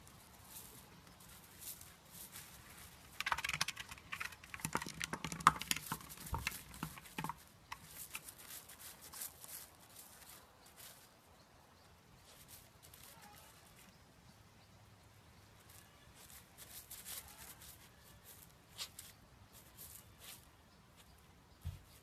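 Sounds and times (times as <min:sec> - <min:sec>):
gravel crunching and clicking: 0:00.0 - 0:11.1.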